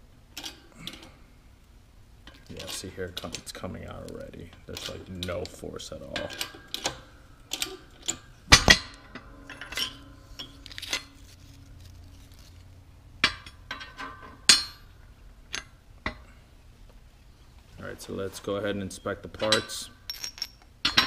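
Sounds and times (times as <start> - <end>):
steel clinking and knocking: 6.1 - 11.3, 13.2 - 14.9, 19.4 - 21.0.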